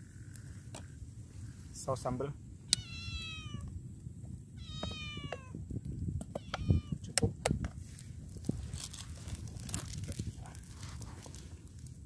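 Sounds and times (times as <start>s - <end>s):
cat meowing: 2.7s - 3.7s, 4.6s - 5.6s, 6.4s - 7.0s.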